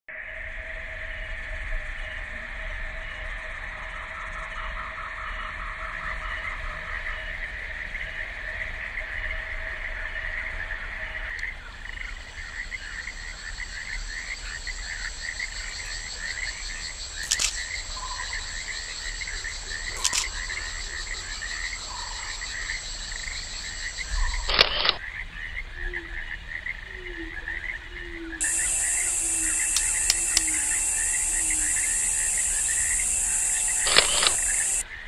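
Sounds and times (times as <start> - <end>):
frog chirps: 17.2 - 25.0, 28.4 - 34.8
high-pitched insect buzz: 24.3 - 25.0, 28.4 - 34.8
sharp clicks: 24.5 - 25.0, 28.4 - 34.8.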